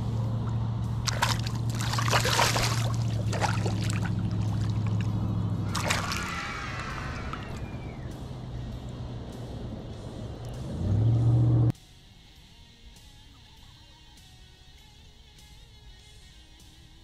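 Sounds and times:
low motor hum: 0:00.0 - 0:11.7
water splashing: 0:01.0 - 0:08.4.

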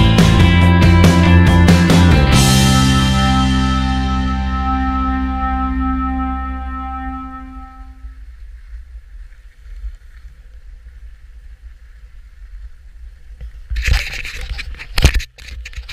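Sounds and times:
background music: 0:00.0 - 0:08.0
wind rumble on microphone: 0:07.4 - 0:15.9
skis scraping across snow: 0:08.2 - 0:14.9.

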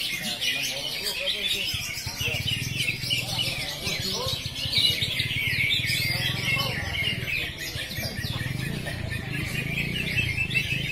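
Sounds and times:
chorus of birds chirping: 0:00.0 - 0:10.9.

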